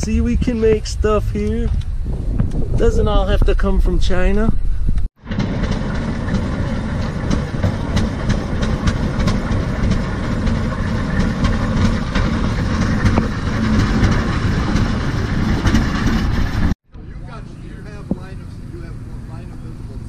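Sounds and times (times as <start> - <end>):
tractor engine running: 4.4 - 20.0.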